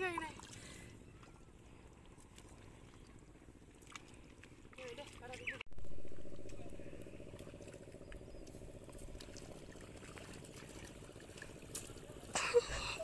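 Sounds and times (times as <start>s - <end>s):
water trickling and splashing: 0.0s - 13.0s
steady low rumble: 5.6s - 13.0s.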